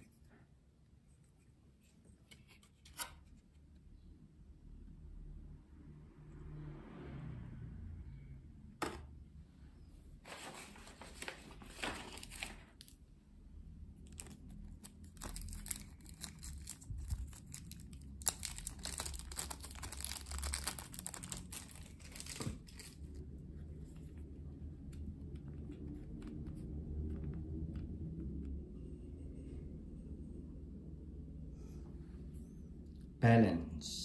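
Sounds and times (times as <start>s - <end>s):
plastic bag crinkling: 14.0s - 23.1s.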